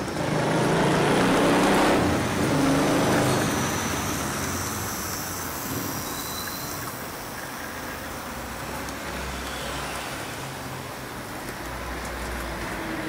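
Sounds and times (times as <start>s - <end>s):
model tram rolling on track: 0.0s - 13.0s
faint high whine: 3.3s - 7.2s.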